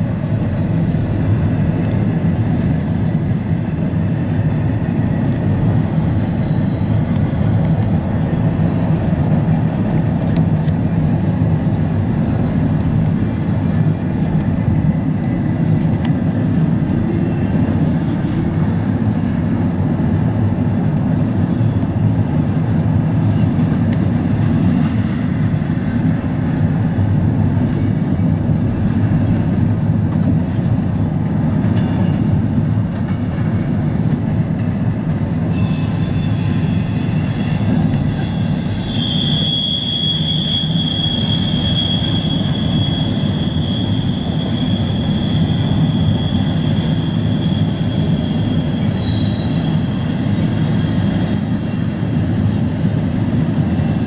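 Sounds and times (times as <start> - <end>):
freight train rumbling: 0.0 - 54.0
train wheels squealing: 1.4 - 9.4, 15.4 - 18.7, 21.2 - 28.7, 31.7 - 33.6, 35.0 - 54.0.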